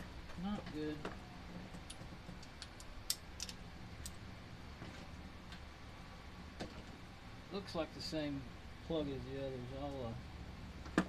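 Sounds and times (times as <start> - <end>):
light clicks and clinks of tools: 1.8 - 4.2.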